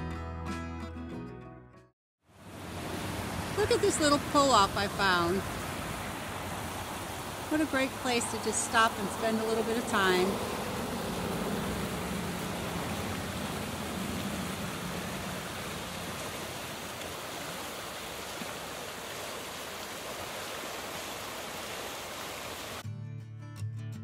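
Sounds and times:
music: 0:00.0 - 0:01.9, 0:22.8 - 0:24.0
river rushing over rocks: 0:02.4 - 0:22.8.

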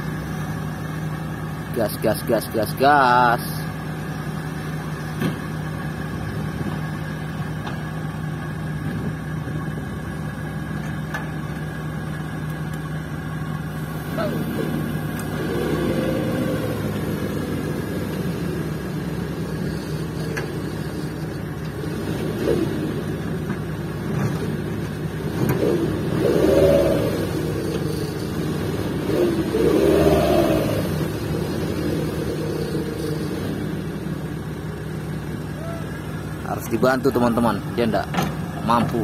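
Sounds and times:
truck engine labouring and revving: 0:00.0 - 0:39.0.

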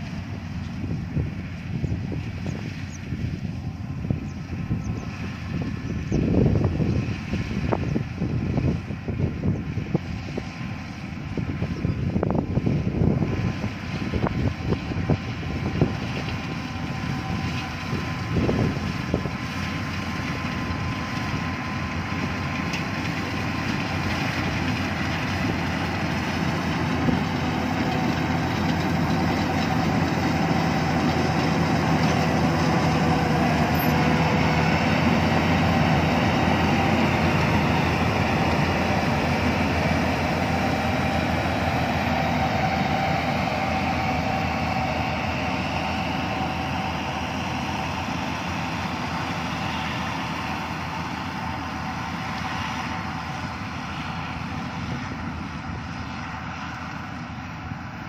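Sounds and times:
combine harvester engine running: 0:00.0 - 0:58.0.

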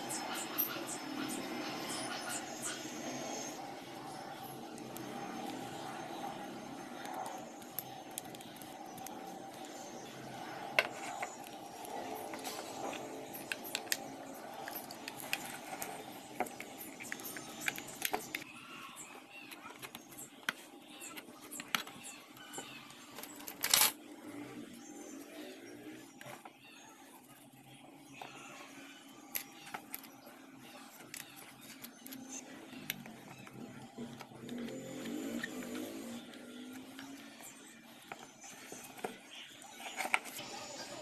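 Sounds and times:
steady low hum: 0:00.0 - 0:23.2
small parts clicking and knocking: 0:10.7 - 0:18.6, 0:19.4 - 0:24.0, 0:29.2 - 0:37.4.

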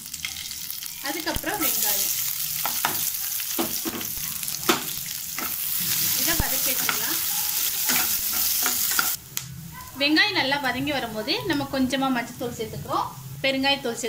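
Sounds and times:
vegetables sizzling in hot oil: 0:00.0 - 0:09.4
metal spatula scraping a pan: 0:02.1 - 0:09.2.

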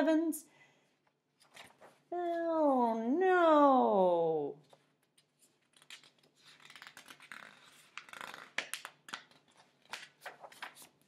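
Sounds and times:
book pages rustling and crinkling: 0:01.4 - 0:02.1, 0:04.6 - 0:11.0.

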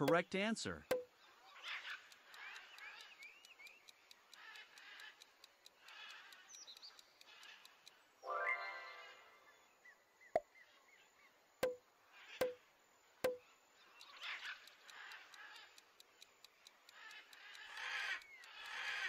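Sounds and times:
click: 0:01.8 - 0:08.0, 0:14.0 - 0:19.0
bright chime: 0:08.2 - 0:09.5.

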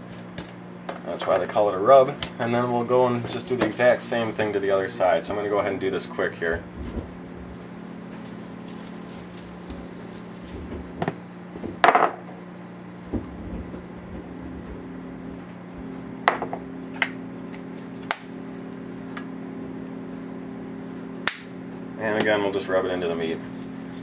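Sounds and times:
low hum: 0:00.9 - 0:22.1.

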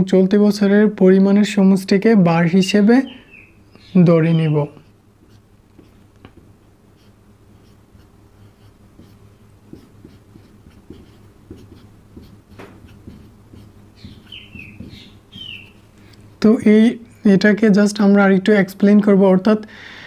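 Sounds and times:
steady low hum: 0:00.0 - 0:20.0
marker writing on whiteboard: 0:04.6 - 0:15.8.

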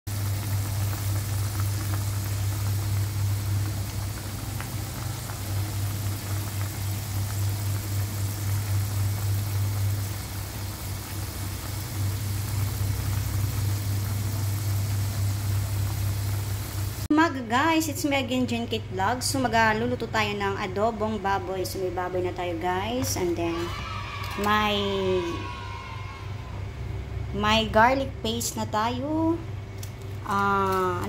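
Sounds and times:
sauce bubbling and hissing: 0:00.1 - 0:17.1
loud steady low hum: 0:00.1 - 0:23.5, 0:24.5 - 0:31.0.

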